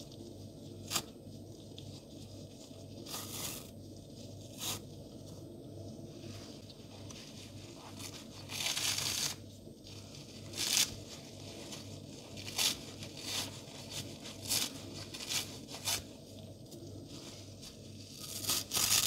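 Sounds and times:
sponge being torn: 3.0 - 3.7, 4.5 - 4.8, 8.0 - 9.4, 10.4 - 11.1, 18.1 - 19.0.

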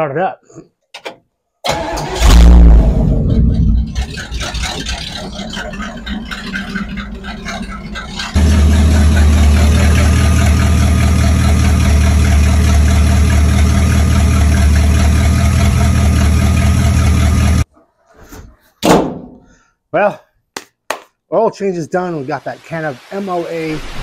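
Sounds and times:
car engine idling: 1.8 - 17.6.

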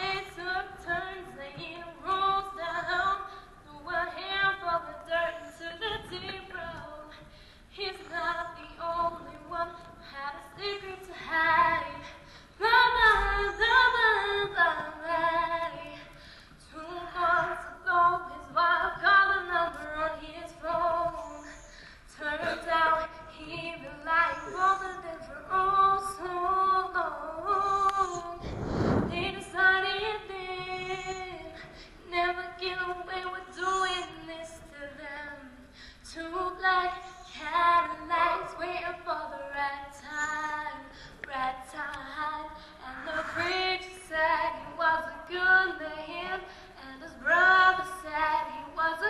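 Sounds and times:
woman singing: 0.0 - 28.5, 29.1 - 49.0.

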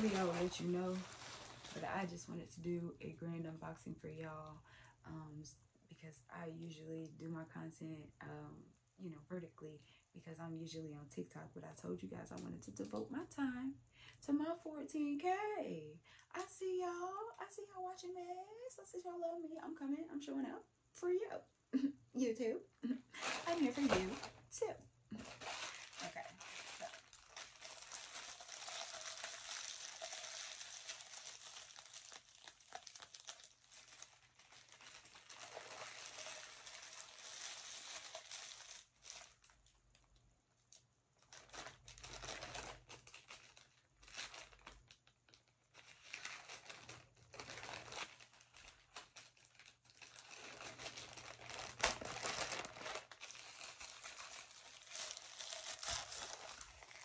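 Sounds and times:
plastic tearing: 0.0 - 2.4, 23.2 - 24.4, 25.1 - 57.0
plastic packaging crinkling: 0.0 - 4.6, 23.2 - 57.0.

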